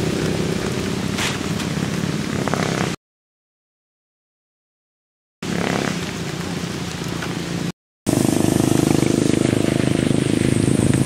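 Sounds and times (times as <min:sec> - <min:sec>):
motorcycle engine running: 0:00.0 - 0:03.0, 0:05.4 - 0:11.0.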